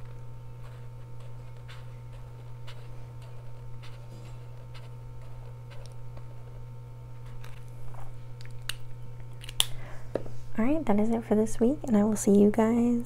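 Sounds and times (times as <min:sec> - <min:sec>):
marker scratching on paper: 0:00.0 - 0:06.4
steady low hum: 0:00.0 - 0:13.0.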